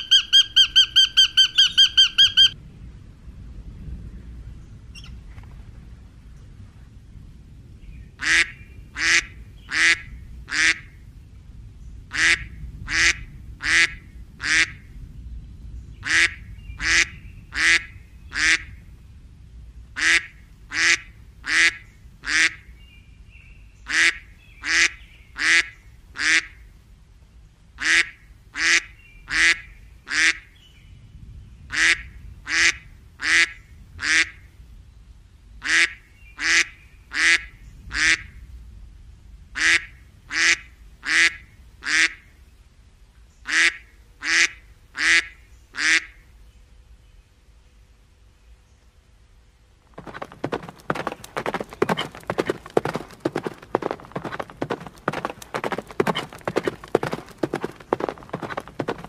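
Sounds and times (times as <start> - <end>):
duck quacking: 0.0 - 2.6, 23.9 - 26.5, 39.6 - 42.2, 43.5 - 46.2.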